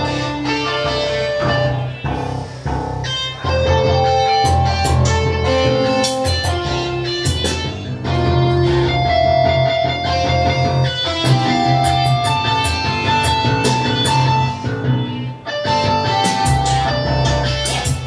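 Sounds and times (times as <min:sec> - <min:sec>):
guitar-like electronic held notes: 0:00.0 - 0:18.0
light beat: 0:00.0 - 0:18.0
low steady bass: 0:00.0 - 0:18.0.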